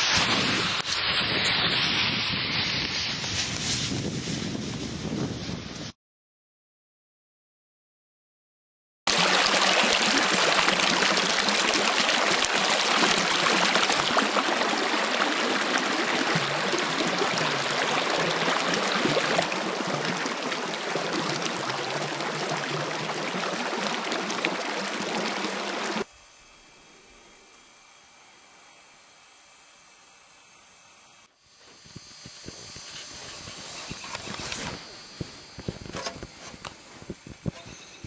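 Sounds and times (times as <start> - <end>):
creek water rushing: 9.1 - 26.1.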